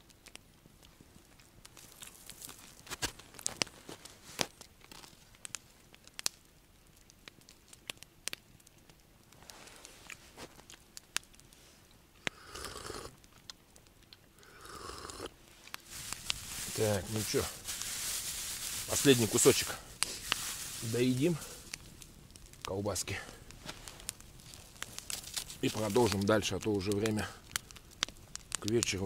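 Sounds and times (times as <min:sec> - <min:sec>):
campfire crackling and popping: 0:00.0 - 0:29.0
plastic bag crinkling: 0:15.7 - 0:28.9.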